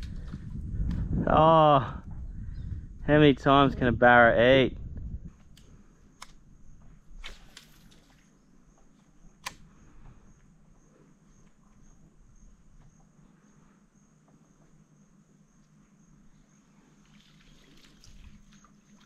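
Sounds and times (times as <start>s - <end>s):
insect chirping trill: 0.0s - 19.0s
sharp clicks: 5.5s - 6.4s, 9.3s - 9.8s.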